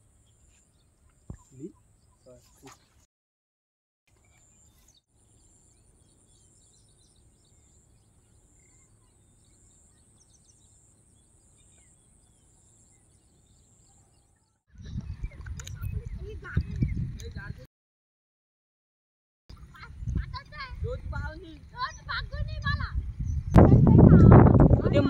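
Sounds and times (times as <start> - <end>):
faint bird chirps: 0.2 - 2.9, 4.2 - 17.0.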